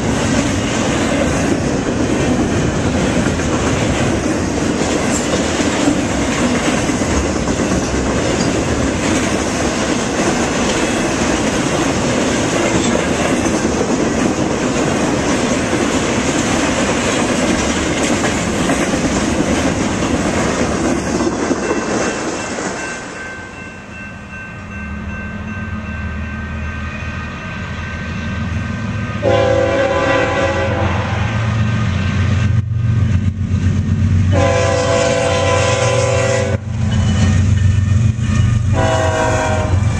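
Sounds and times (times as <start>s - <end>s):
diesel locomotive engine drone: 0.0s - 39.9s
train air horn blast: 29.2s - 31.5s, 34.3s - 36.7s, 38.7s - 39.9s.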